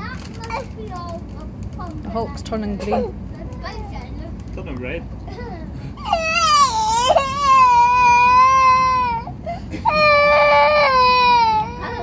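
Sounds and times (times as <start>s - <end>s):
young boy crying: 2.8s - 3.2s, 5.3s - 12.0s.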